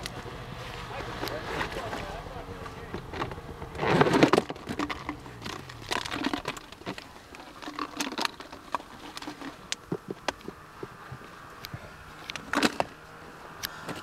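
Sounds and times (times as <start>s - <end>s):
rustling and crackling: 0.0s - 14.0s.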